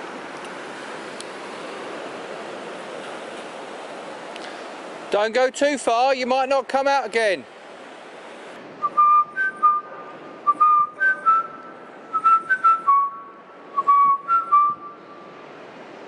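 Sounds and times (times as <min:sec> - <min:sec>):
person whistling a tune: 0:08.8 - 0:09.9, 0:10.5 - 0:15.0.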